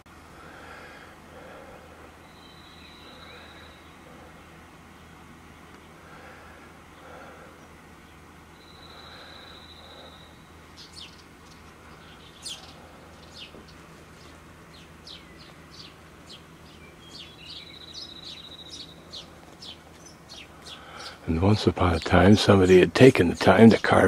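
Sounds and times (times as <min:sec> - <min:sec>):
small birds chirping: 0:00.4 - 0:24.0
bird trilling: 0:02.2 - 0:04.3, 0:08.6 - 0:21.3.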